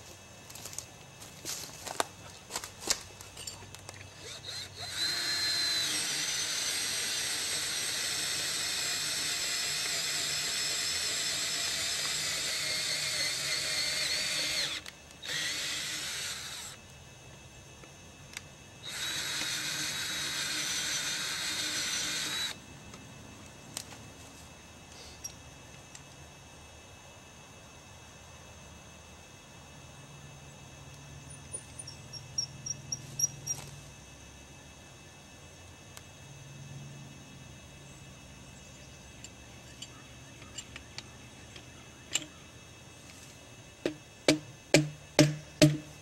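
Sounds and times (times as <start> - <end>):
power drill whining: 4.1 - 16.8, 18.8 - 22.6.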